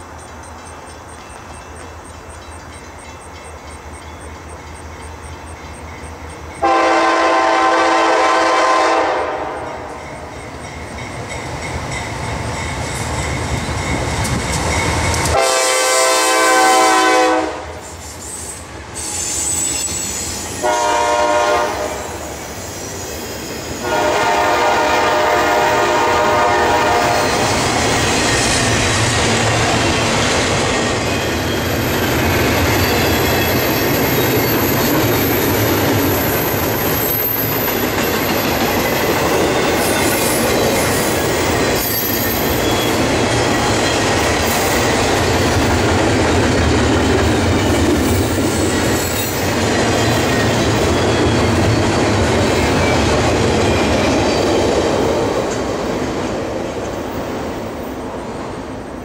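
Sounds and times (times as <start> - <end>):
rumble and clatter of train cars: 0.0 - 59.0
locomotive air horn blasts: 6.6 - 10.0, 15.3 - 17.8, 20.6 - 22.3, 23.8 - 27.4.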